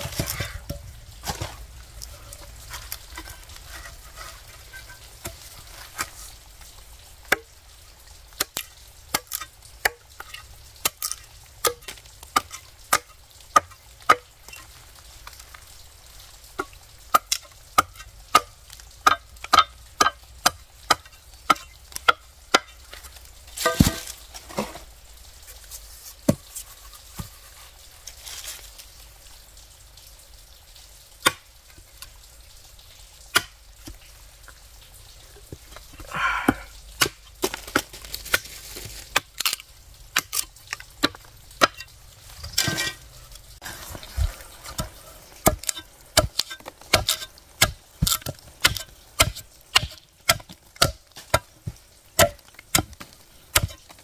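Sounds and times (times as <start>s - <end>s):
wood chopping: 23.6s - 24.8s, 44.1s - 54.0s.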